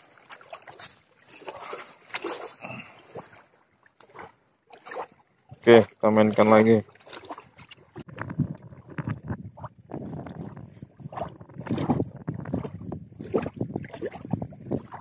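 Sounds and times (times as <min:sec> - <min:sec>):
lake water lapping and sloshing: 0:00.0 - 0:15.0
wind buffeting microphone: 0:08.0 - 0:15.0.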